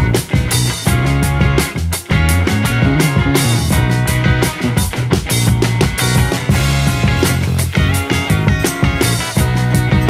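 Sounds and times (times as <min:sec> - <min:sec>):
bass line: 0:00.0 - 0:10.0
drum-kit beat: 0:00.0 - 0:10.0.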